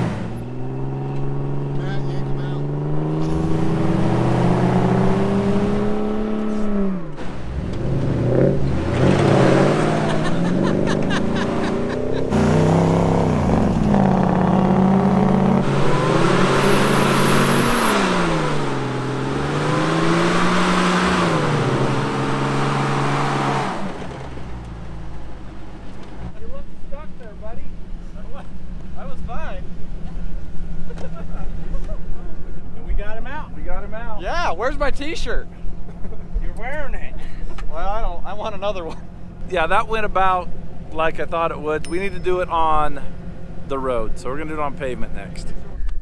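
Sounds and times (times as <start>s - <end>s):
engines revving hard: 0.0s - 26.4s
tires spinning in sand: 0.0s - 26.4s.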